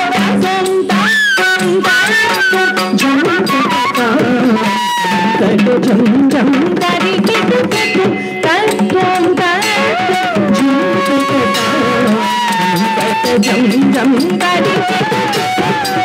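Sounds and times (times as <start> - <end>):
mridangam strokes: 0.0 - 16.0
person singing melody: 0.0 - 16.0
bamboo flute: 0.9 - 6.5, 9.6 - 16.0.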